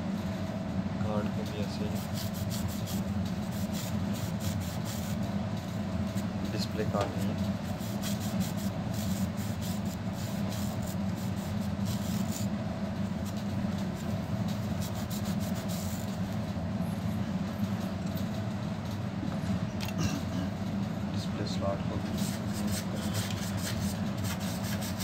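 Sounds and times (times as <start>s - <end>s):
steady low hum: 0.0s - 25.0s
cloth wiping metal heatsink: 1.8s - 5.2s, 6.1s - 16.2s, 22.1s - 25.0s.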